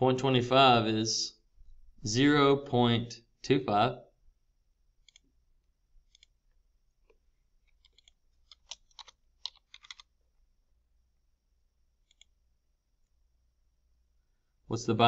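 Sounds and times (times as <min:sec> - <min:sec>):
computer keyboard clicking: 0:07.7 - 0:10.1, 0:12.0 - 0:12.4
mouse clicks: 0:12.0 - 0:12.4.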